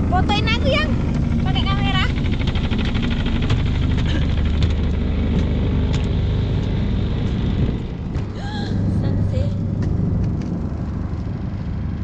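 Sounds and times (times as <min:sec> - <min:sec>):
engine drone: 0:00.0 - 0:12.0
fast rattle: 0:01.0 - 0:06.4.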